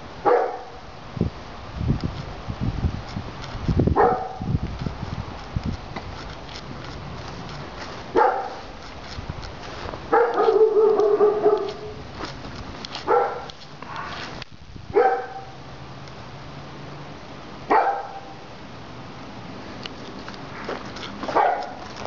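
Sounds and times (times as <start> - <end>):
dog barking: 0.2 - 0.8, 4.0 - 4.5, 8.1 - 8.6, 10.1 - 12.0, 13.1 - 13.5, 15.0 - 15.6, 17.7 - 18.4, 21.3 - 21.8.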